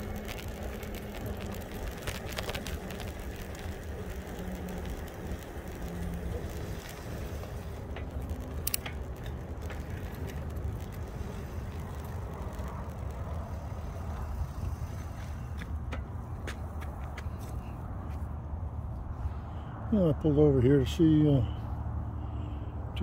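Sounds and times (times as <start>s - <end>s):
sharp clicks: 0.0s - 13.5s
wind buffeting microphone: 0.0s - 19.2s
tyre noise on road: 0.0s - 23.0s.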